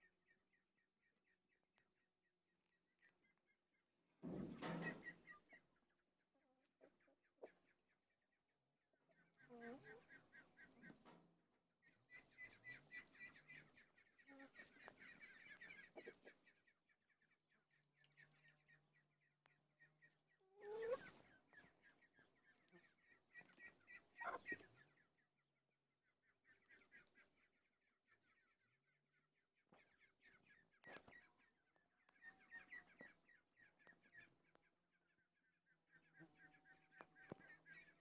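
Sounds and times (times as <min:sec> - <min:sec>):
chickens clucking: 0:04.2 - 0:08.0, 0:09.1 - 0:19.0, 0:19.6 - 0:25.2, 0:29.7 - 0:34.6, 0:35.9 - 0:38.0.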